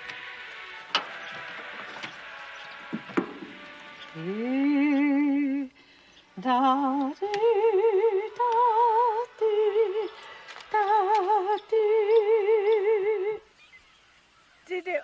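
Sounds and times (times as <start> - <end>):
woman singing wordless melody: 4.1 - 13.6, 14.6 - 15.0
singer breathing: 5.7 - 6.4, 10.1 - 10.6.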